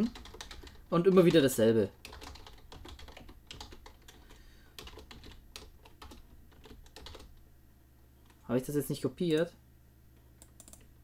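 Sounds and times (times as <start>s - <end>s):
computer keyboard typing: 0.0s - 7.4s, 10.3s - 10.9s.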